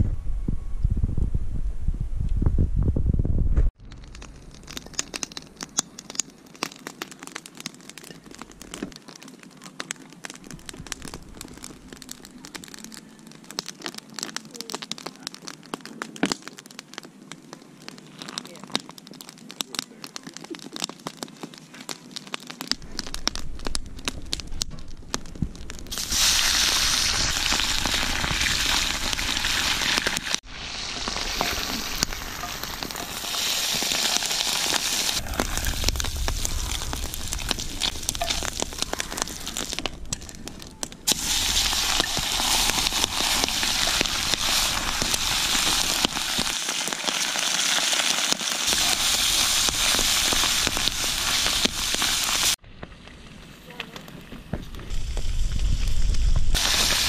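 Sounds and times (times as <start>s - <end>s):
oil crackling and popping: 3.8s - 57.0s
fish sizzling in hot oil: 25.9s - 40.4s, 41.0s - 52.6s, 54.8s - 57.0s.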